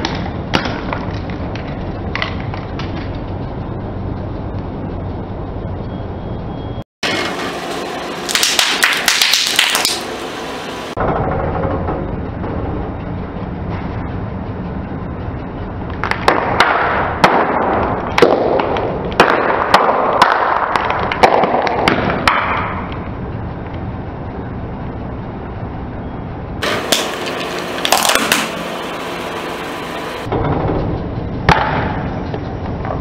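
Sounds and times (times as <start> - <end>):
plastic packets bursting under tyre: 8.3 - 10.0.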